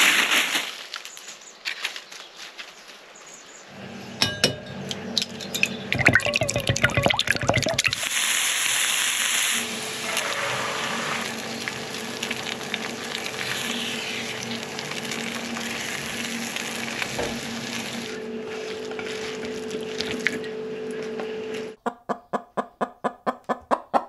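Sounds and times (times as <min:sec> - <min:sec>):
eggs sizzling in a frying pan: 0:06.1 - 0:18.6.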